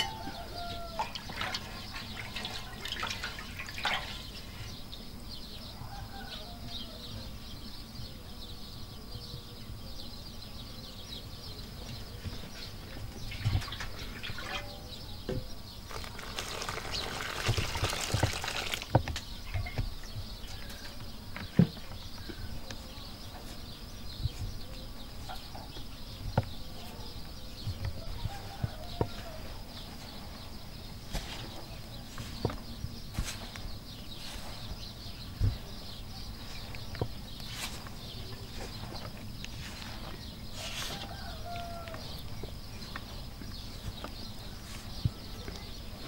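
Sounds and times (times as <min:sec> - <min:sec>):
water pouring into metal bowl: 0:15.9 - 0:19.0.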